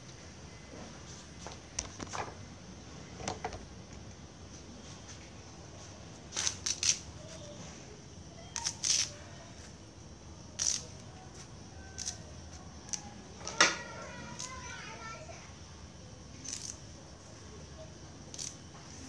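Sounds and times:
leaves rustling and snapping: 6.3s - 7.0s.

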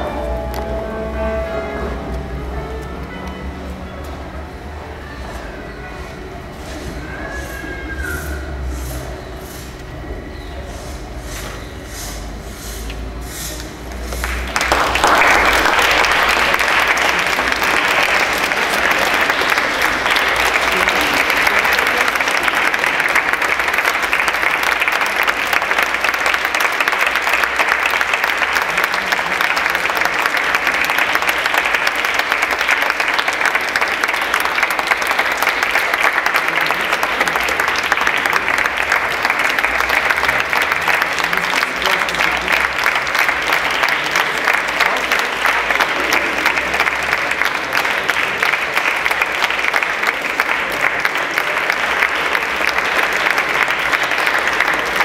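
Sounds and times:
audience applauding: 13.9s - 55.0s.

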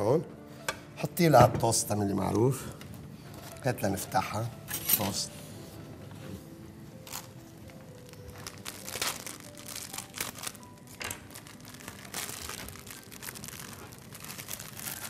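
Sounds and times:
plastic wrapper crinkling: 7.0s - 15.0s.

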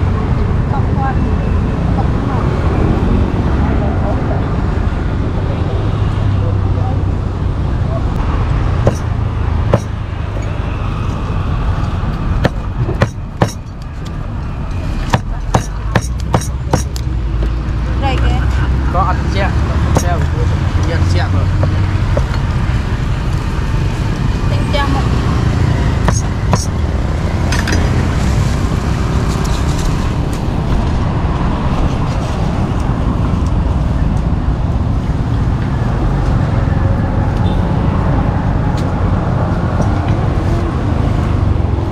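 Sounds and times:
cleaver chopping on wooden board: 8.8s - 9.1s, 9.7s - 9.9s, 12.4s - 13.6s, 15.1s - 17.0s, 26.0s - 26.7s
wind buffeting microphone: 19.7s - 41.9s
steady low rumble: 25.8s - 41.9s.

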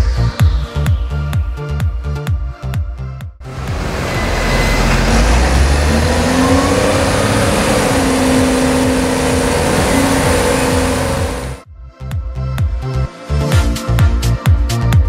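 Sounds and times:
diesel engine working under load: 3.4s - 11.6s.

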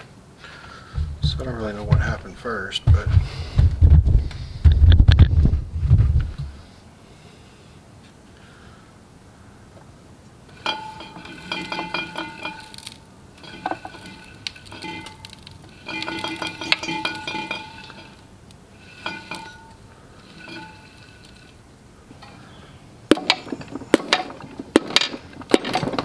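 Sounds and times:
engine metal scraping and clinking: 10.5s - 26.0s.

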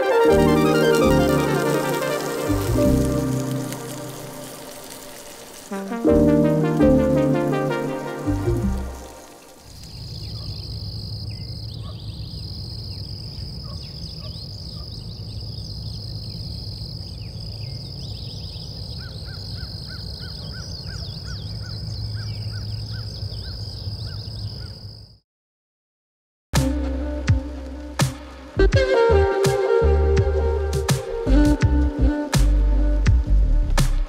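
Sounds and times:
background music: 0.0s - 9.6s, 26.6s - 34.0s
birds chirping: 0.0s - 25.0s
insects droning: 0.0s - 25.2s.

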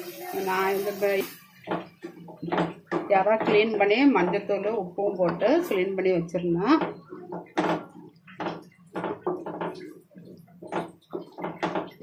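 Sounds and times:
spoon stirring thick curry: 6.9s - 12.0s.

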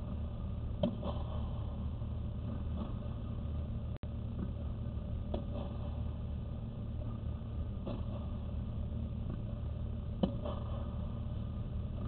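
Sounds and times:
low machine hum: 0.0s - 12.0s
tennis balls struck by rackets: 10.2s - 10.9s.

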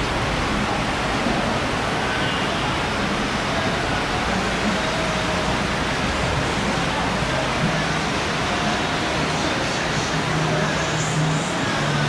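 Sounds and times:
heavy rain on roof: 0.0s - 12.0s.

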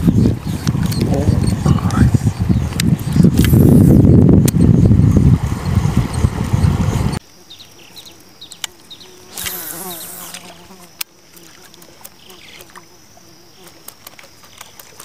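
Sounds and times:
wind buffeting microphone: 0.0s - 7.2s
brief buzz: 9.3s - 10.6s.

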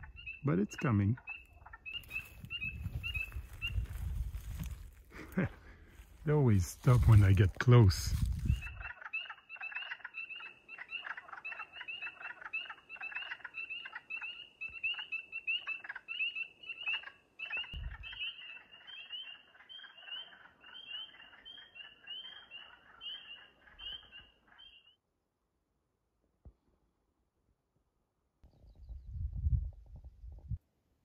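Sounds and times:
frogs croaking: 0.0s - 4.5s, 8.5s - 25.0s.

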